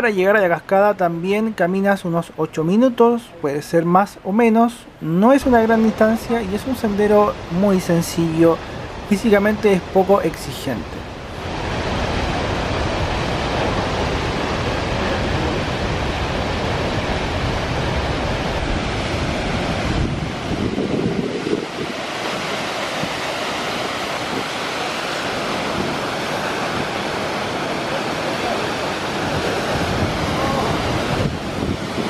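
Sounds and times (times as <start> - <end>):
waterfall rushing: 4.7 - 32.0
wind buffeting microphone: 11.2 - 32.0.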